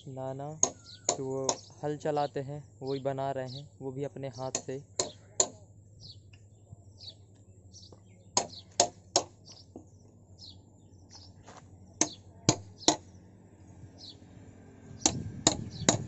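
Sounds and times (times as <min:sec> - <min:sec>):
small birds chirping: 0:00.0 - 0:16.0
axe chopping into wood: 0:00.6 - 0:01.6, 0:04.5 - 0:05.6, 0:08.4 - 0:09.4, 0:12.0 - 0:13.0.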